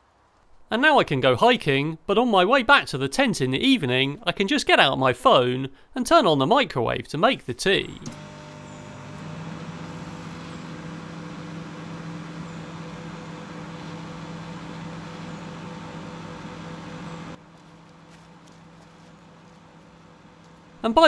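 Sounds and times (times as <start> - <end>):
microwave oven humming: 8.0 - 21.0.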